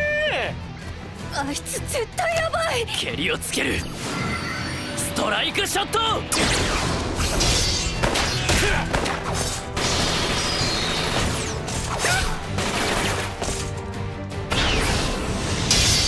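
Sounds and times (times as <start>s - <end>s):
driving background music: 0.0s - 16.0s
gunshots: 6.3s - 13.7s.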